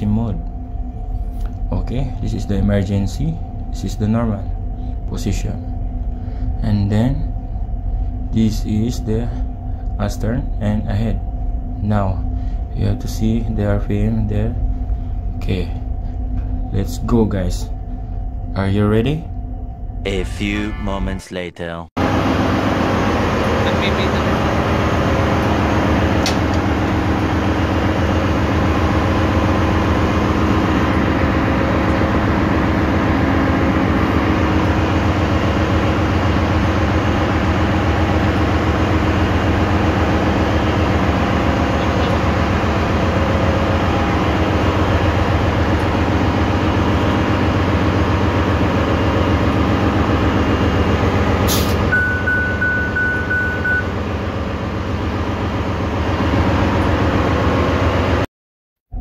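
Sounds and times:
engine room machinery noise: 0.0s - 58.3s
high-pitched beep: 51.9s - 53.9s.

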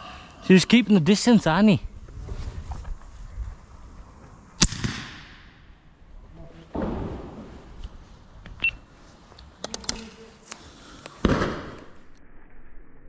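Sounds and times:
shotgun shots: 4.6s - 5.6s, 11.2s - 12.0s.

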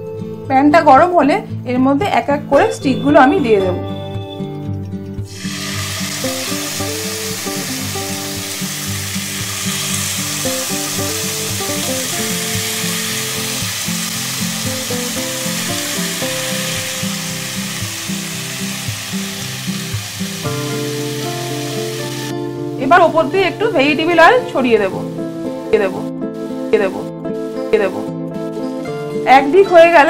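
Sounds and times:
background music: 0.0s - 30.0s
skewers sizzling in hot oil: 5.3s - 22.3s.

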